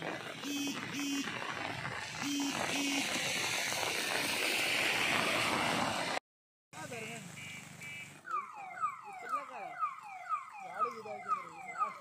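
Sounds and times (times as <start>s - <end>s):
warbling electronic tone: 2.1s - 3.8s
short electronic beeps: 2.2s - 3.1s.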